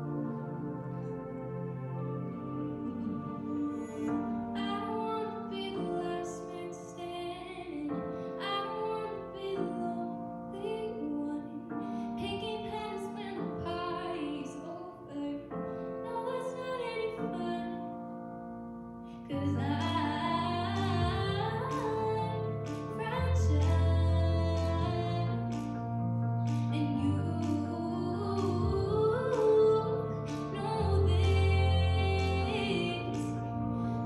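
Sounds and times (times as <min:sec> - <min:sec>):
instrumental accompaniment: 0:00.0 - 0:06.8
young woman singing pop ballad: 0:04.5 - 0:18.0, 0:19.2 - 0:34.0.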